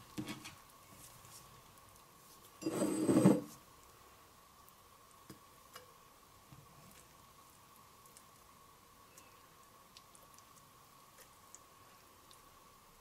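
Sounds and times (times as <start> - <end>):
spatula scraping a bowl: 2.6 - 3.5.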